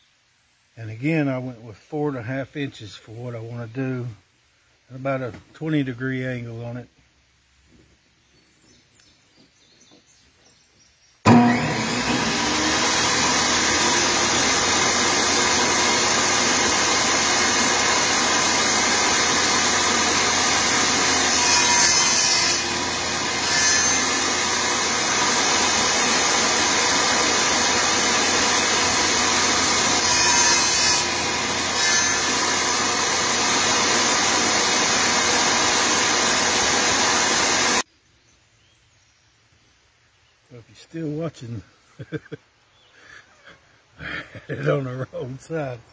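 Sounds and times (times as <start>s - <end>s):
table saw cutting wood: 11.3s - 37.8s.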